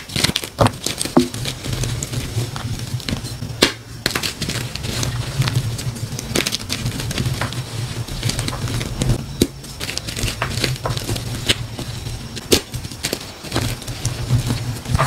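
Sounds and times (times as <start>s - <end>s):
chalk pieces snapping: 0.0s - 5.6s, 6.2s - 15.0s
chalk crunching and crumbling: 0.0s - 15.0s
low hum: 0.0s - 15.0s.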